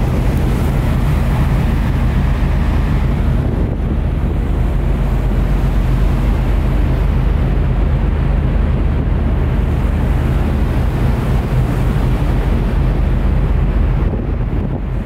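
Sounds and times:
deep rumble of ship engines: 0.0 - 15.0
sea along the hull: 0.0 - 15.0
wind blowing on microphone: 0.0 - 15.0.

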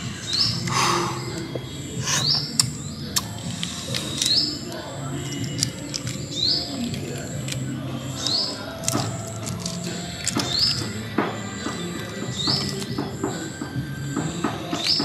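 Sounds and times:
bird chirping: 0.0 - 15.0
eggshell cracking and crinkling: 2.5 - 11.0.

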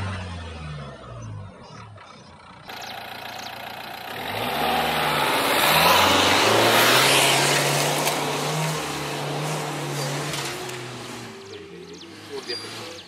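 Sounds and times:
diesel engine revving hard: 0.0 - 1.6, 2.7 - 13.0.

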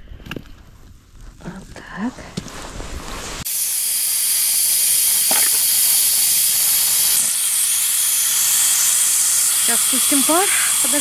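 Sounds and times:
steam hissing from pressure valve: 3.4 - 11.0.

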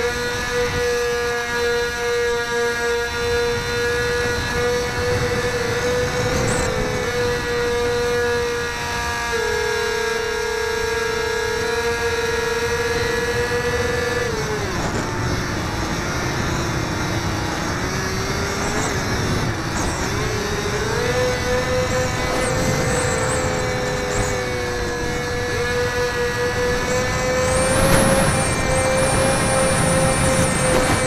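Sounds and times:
wind rushing over microphone: 0.0 - 1.2, 3.0 - 9.3, 11.5 - 31.0
model plane motor whining: 0.0 - 31.0
thin high whine: 18.4 - 31.0.

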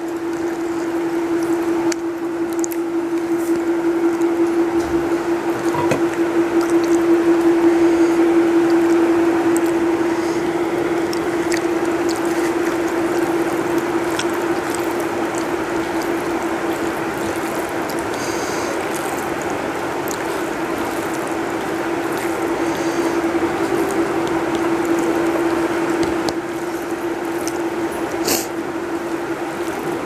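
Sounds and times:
fingers mixing rice on steel plate: 0.0 - 30.0
steady machine hum: 0.0 - 30.0.

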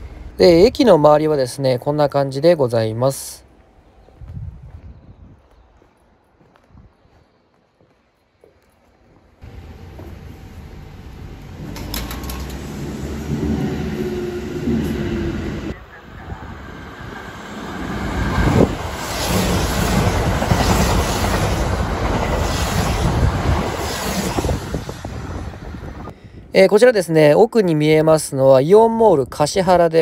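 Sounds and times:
train rushing past: 9.4 - 26.1
wheels clattering over rail joints: 11.5 - 14.4.

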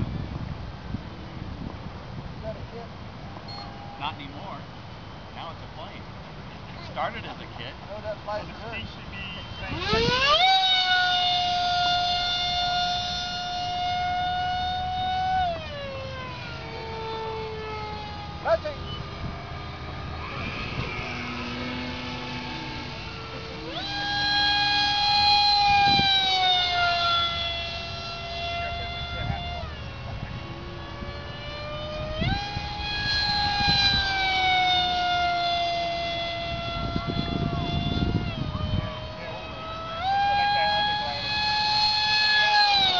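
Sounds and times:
low wind rumble: 0.0 - 42.9
model jet engine whining: 2.4 - 42.9.

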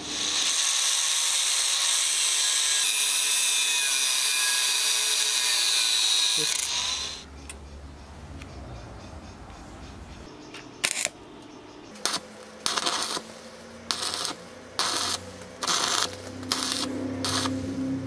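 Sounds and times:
welding arc crackling and hissing: 0.0 - 3.2, 12.0 - 17.8.

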